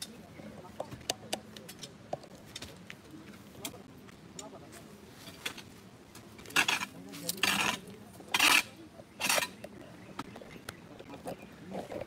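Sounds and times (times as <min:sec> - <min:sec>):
shovels scraping loose earth: 0:04.7 - 0:09.7.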